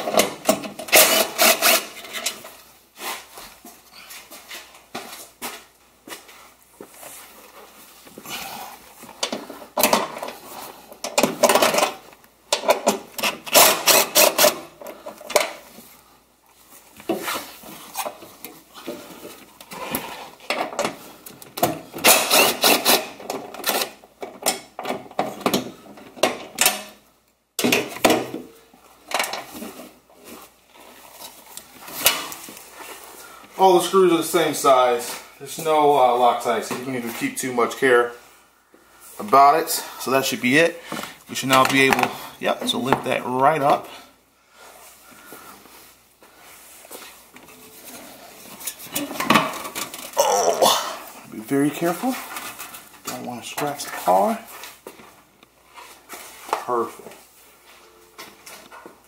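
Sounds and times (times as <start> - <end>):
tool clicking and rattling: 11.0 - 15.6.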